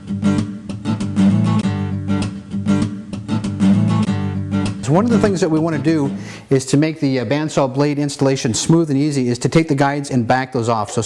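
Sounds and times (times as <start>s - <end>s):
guitar strumming: 0.0s - 7.9s.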